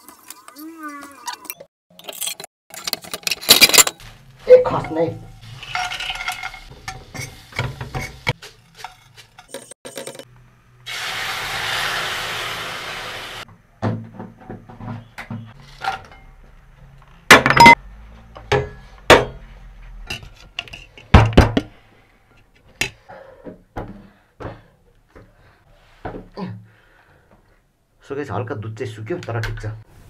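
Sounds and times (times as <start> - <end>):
pans and utensils clattering: 2.0 - 4.0, 4.7 - 10.3
liquid sizzling in hot pan: 10.9 - 13.4.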